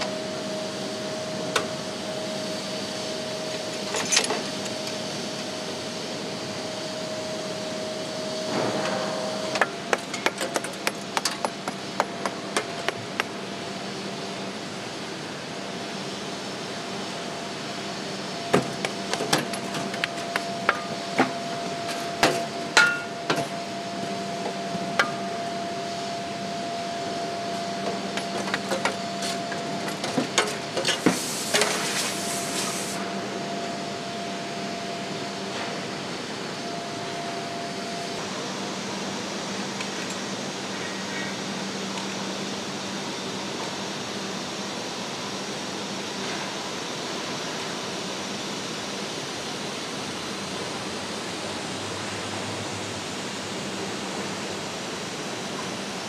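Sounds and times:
machine hum: 0.0s - 46.0s.

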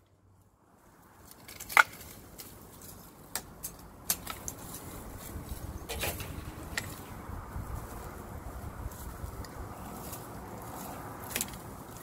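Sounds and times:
leaves rustling: 0.8s - 12.0s
pole pruner snipping branches: 4.1s - 7.1s.

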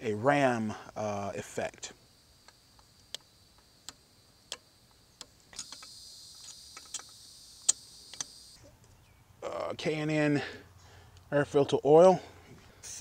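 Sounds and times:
steady high hiss: 0.0s - 13.0s.

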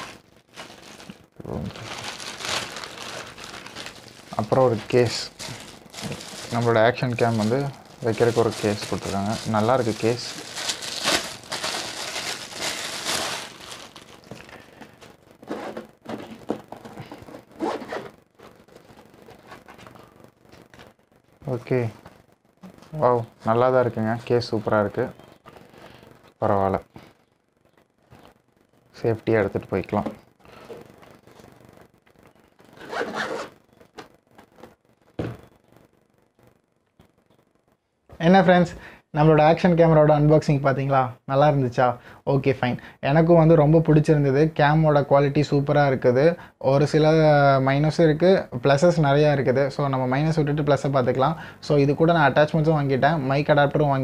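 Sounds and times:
plastic wrapping rustling: 0.0s - 20.9s
zipper being pulled open: 17.3s - 18.1s, 32.6s - 33.6s
scratching and rubbing of case: 32.6s - 33.9s.

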